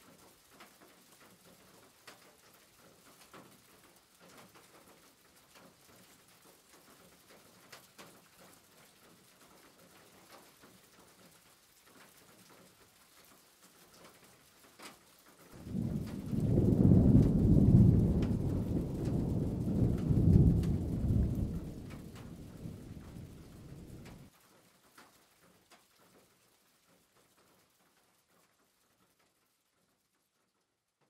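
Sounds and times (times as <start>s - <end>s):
onions crackling in oil: 15.5s - 24.3s.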